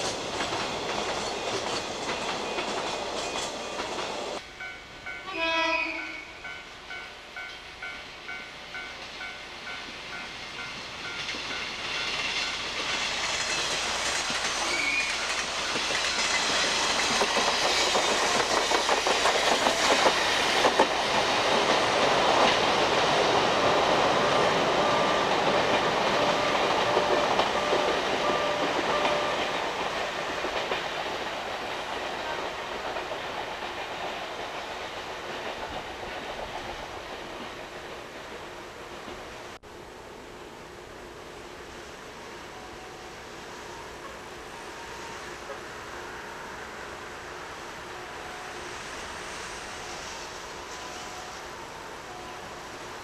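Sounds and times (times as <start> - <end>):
train wheels clattering over rail joints: 0.0 - 4.4, 10.6 - 37.8.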